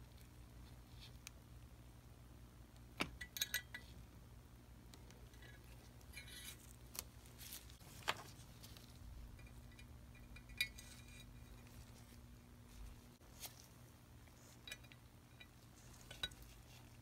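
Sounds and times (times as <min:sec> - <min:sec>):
faint low hum: 0:00.0 - 0:17.0
tool scraping metal: 0:10.2 - 0:11.7.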